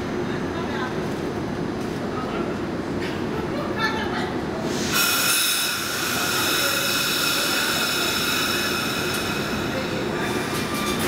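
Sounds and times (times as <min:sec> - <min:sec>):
electric train whine: 0:04.7 - 0:11.0.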